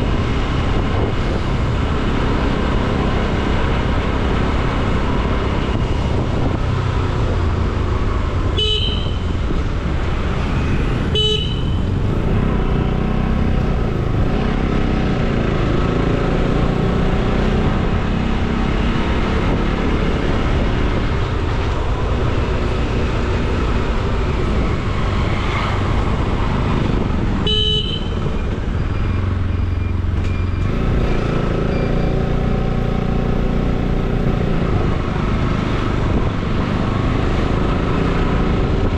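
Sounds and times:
road noise: 0.0s - 38.9s
motorcycle horn toots: 8.6s - 9.4s, 11.0s - 11.9s, 27.4s - 28.3s.

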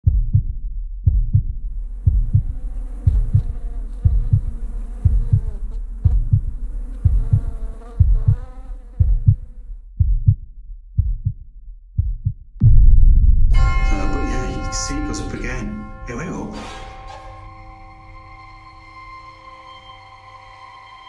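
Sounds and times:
heartbeat thumps: 0.0s - 14.3s
wavering buzzing tone: 13.6s - 21.0s.

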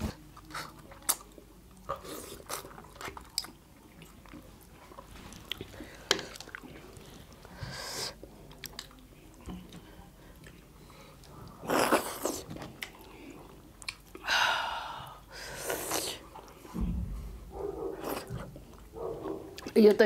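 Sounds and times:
chewing and lip smacks: 0.3s - 14.2s, 17.9s - 19.8s
slurping: 9.7s - 14.3s, 15.4s - 16.7s, 17.9s - 18.9s
sucking food from fingers: 15.5s - 16.6s.

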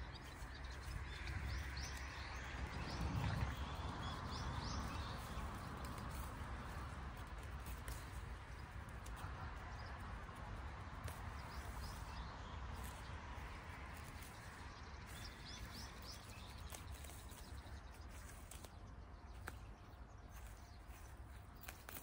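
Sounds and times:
low rumble: 0.0s - 10.9s.

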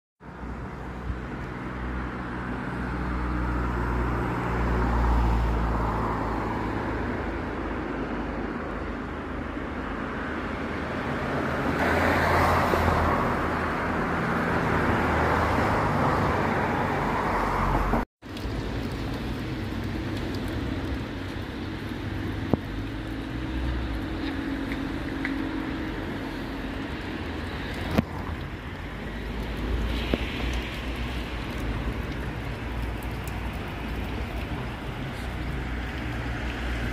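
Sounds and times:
cars passing: 0.2s - 36.9s
low outdoor rumble: 18.3s - 36.9s.

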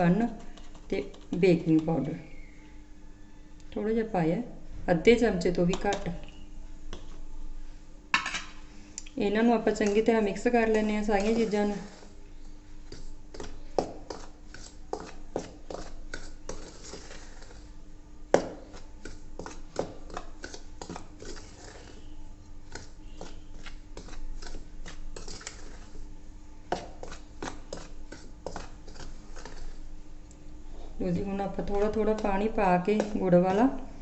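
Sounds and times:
spoon clinking and scraping bowl: 12.9s - 17.6s, 18.7s - 26.0s, 26.8s - 29.8s.

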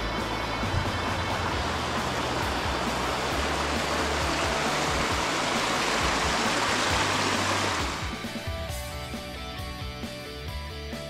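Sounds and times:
faint background music: 0.0s - 11.0s
creek rushing over stones: 0.6s - 8.5s.

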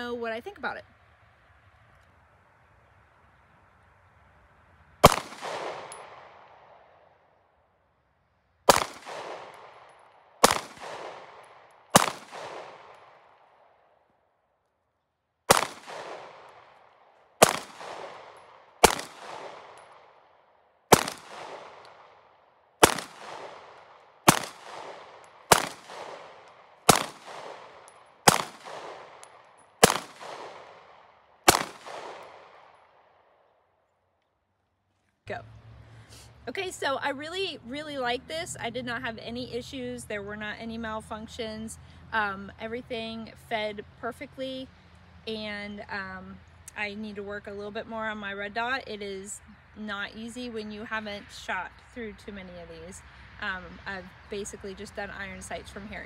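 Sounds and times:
pistol shots with echo: 5.0s - 6.9s, 8.7s - 13.3s, 15.5s - 16.8s, 17.4s - 20.2s, 20.9s - 33.0s.

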